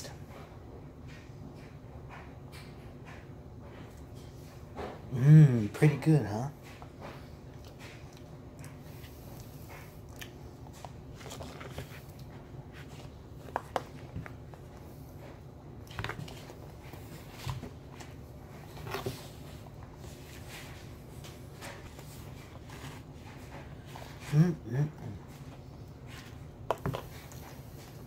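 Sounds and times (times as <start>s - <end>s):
steady low hum: 0.0s - 28.0s
chewing: 7.0s - 14.9s.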